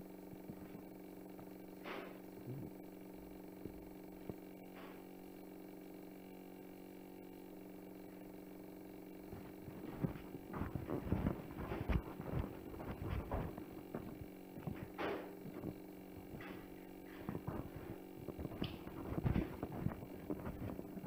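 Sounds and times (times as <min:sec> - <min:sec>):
electrical hum: 0:00.0 - 0:21.0
irregular knocks and thuds: 0:09.3 - 0:20.8.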